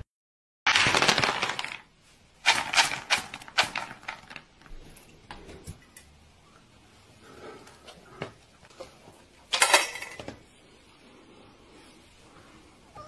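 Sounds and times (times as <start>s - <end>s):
dry kibble pouring into bowl: 0.7s - 1.9s.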